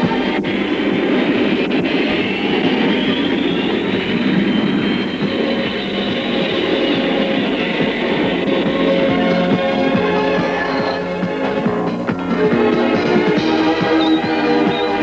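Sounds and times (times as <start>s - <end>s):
jet engines rumbling and whining: 0.0s - 15.0s
background music: 5.2s - 15.0s.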